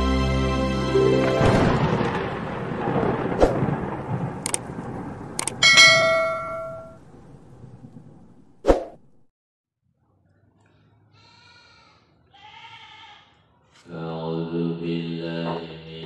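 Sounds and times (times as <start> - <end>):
crackling electric burst: 1.4 - 5.6
bright bell ding: 5.6 - 7.0.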